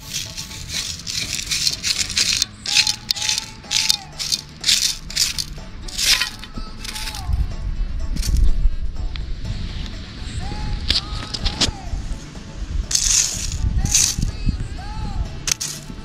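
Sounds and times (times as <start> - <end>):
pebbles rattling in metal sieve: 0.0 - 7.3, 12.9 - 14.3, 15.5 - 15.9.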